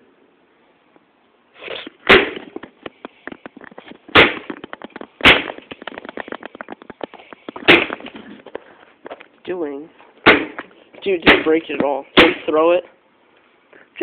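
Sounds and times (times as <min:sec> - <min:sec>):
sharp gunshots: 0:02.1 - 0:02.5, 0:04.2 - 0:04.5, 0:05.2 - 0:05.6, 0:07.6 - 0:08.0, 0:10.2 - 0:10.6, 0:11.2 - 0:11.6, 0:12.2 - 0:12.5
small clicks crackling: 0:04.6 - 0:07.6.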